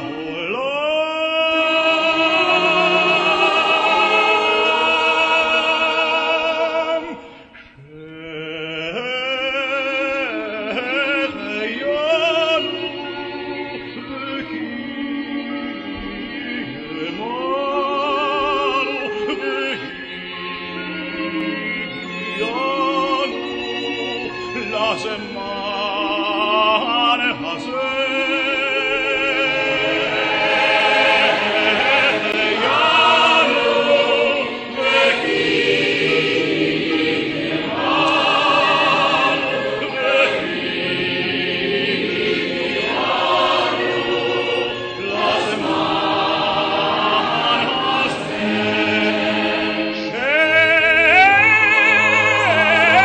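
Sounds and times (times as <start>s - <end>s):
choir singing long notes: 0.0s - 53.0s.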